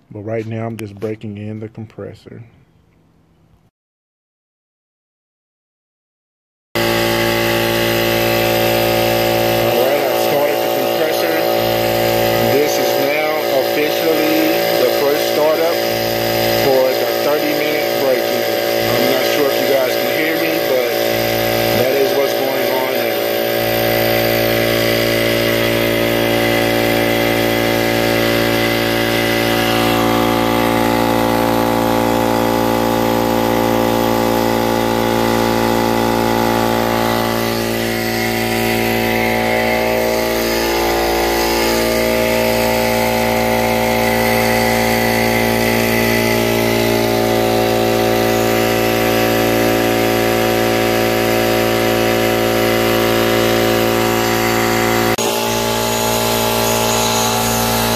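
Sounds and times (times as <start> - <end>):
air compressor running: 6.8 - 57.9.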